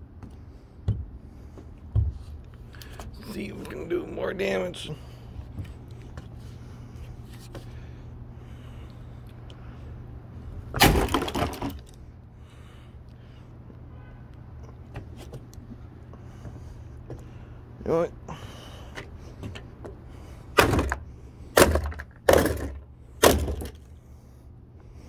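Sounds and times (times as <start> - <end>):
sledgehammer smashing coffee machine: 10.8 - 11.8, 21.6 - 23.8.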